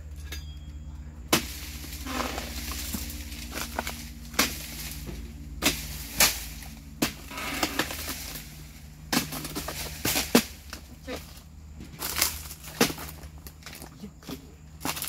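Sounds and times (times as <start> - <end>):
chisel chopping wood: 3.5 - 5.0, 5.6 - 8.2, 9.1 - 10.8, 12.0 - 13.2.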